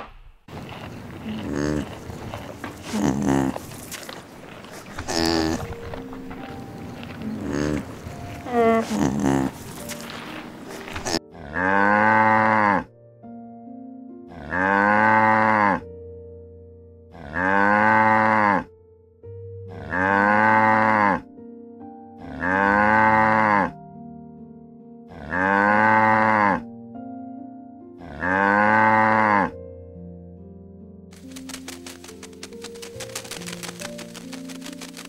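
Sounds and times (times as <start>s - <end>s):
soft music: 0.9s - 35.0s
cow mooing: 1.2s - 3.6s, 5.1s - 5.7s, 7.2s - 9.6s, 11.0s - 12.9s, 14.3s - 15.8s, 17.1s - 18.7s, 19.7s - 21.2s, 22.2s - 23.8s, 25.1s - 26.6s, 28.0s - 29.6s.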